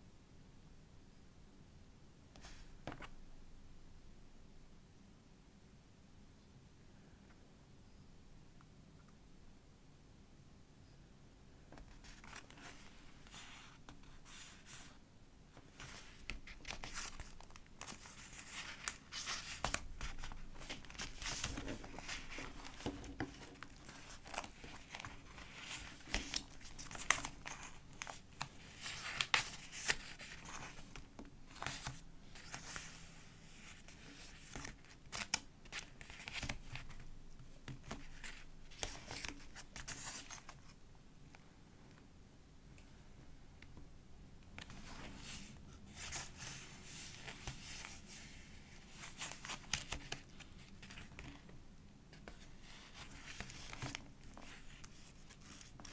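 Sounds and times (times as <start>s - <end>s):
paper pages rustling and snapping: 11.7s - 13.4s, 15.6s - 33.0s, 33.7s - 40.7s, 49.0s - 51.5s, 52.2s - 55.9s.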